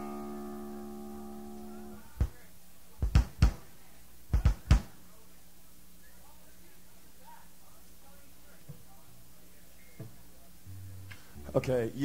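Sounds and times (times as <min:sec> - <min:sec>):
electric guitar note ringing: 0:00.0 - 0:02.0
amp hum: 0:00.0 - 0:02.2.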